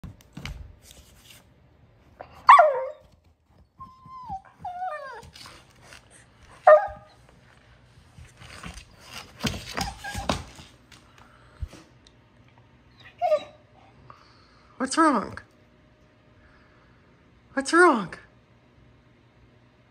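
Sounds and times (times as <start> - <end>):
dog yipping: 2.4 - 3.1, 6.6 - 7.2, 9.4 - 10.6, 12.9 - 13.6
dog whining: 2.4 - 5.6, 6.6 - 7.2, 8.6 - 10.6, 12.9 - 13.9.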